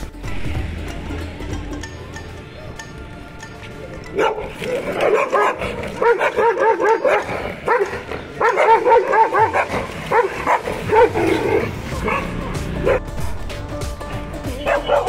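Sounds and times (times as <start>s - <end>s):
dog barking: 4.1s - 13.1s, 14.6s - 15.0s.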